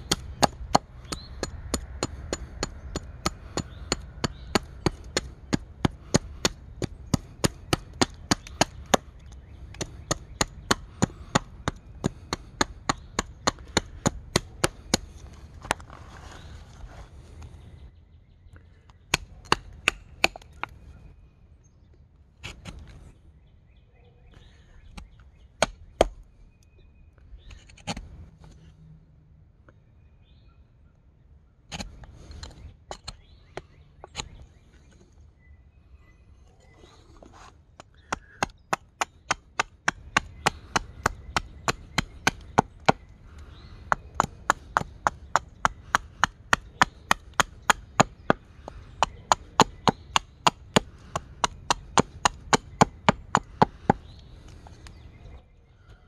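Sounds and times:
axe chopping wood: 0.0 - 15.8, 19.1 - 20.7, 38.0 - 54.0.

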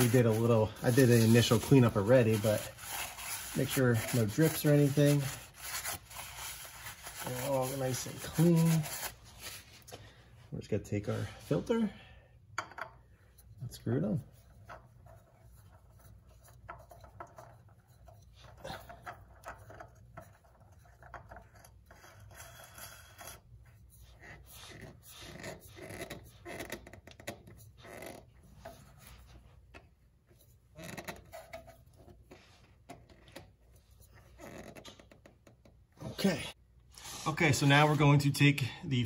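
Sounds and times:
hands scraping oil filter: 0.0 - 9.7.

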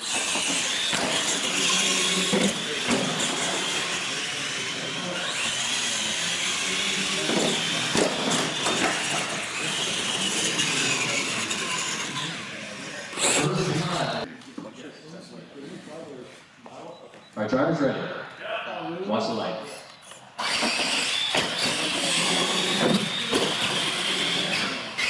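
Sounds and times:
electric motors whining: 0.0 - 14.3, 20.1 - 25.0.

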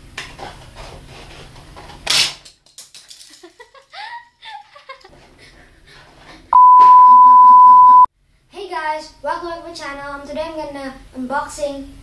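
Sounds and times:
child giggling: 3.6 - 5.1.

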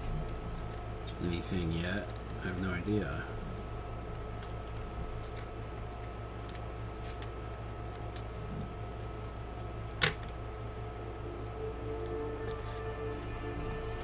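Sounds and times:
steady low hum: 0.0 - 14.0
trading cards handled and flipped: 0.1 - 3.2, 3.9 - 9.2, 12.0 - 13.7.

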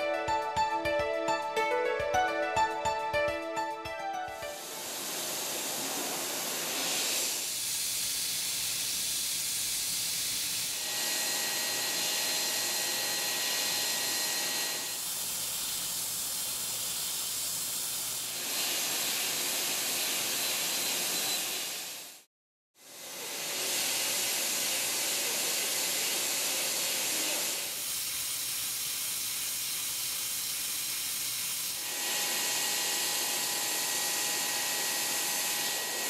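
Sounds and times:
compressed air hiss: 4.5 - 12.6, 14.8 - 22.3, 22.9 - 36.0.

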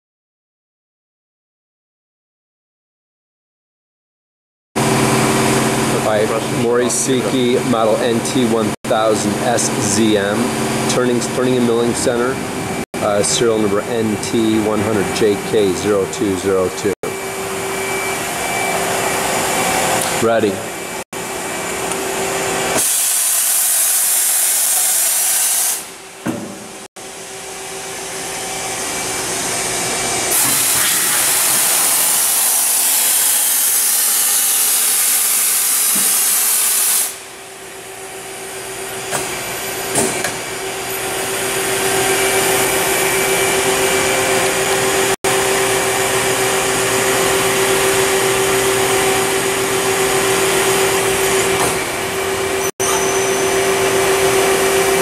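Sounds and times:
machine mechanical whine: 4.8 - 21.0, 38.6 - 55.0.

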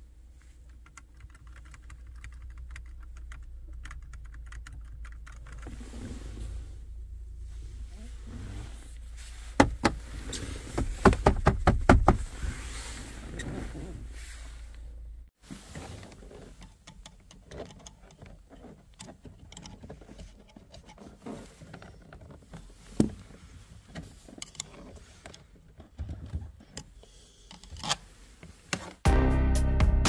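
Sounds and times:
music: 29.0 - 30.0.

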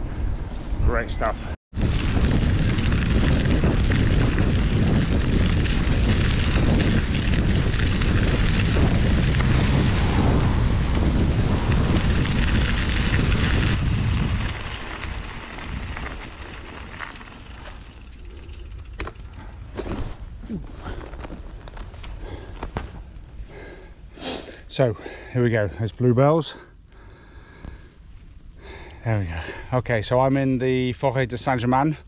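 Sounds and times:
wind buffeting microphone: 0.0 - 23.8.

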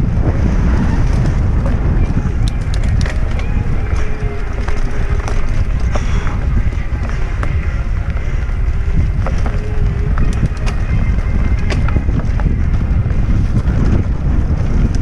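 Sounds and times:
bike clicks and rattles: 0.0 - 15.0
bike rolling on dirt trail: 0.0 - 15.0
wind buffeting microphone: 0.0 - 15.0.

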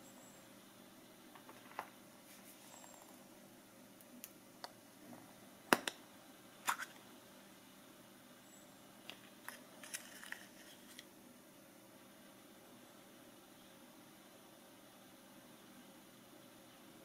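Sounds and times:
plastic clicks and rustles: 9.1 - 11.1.

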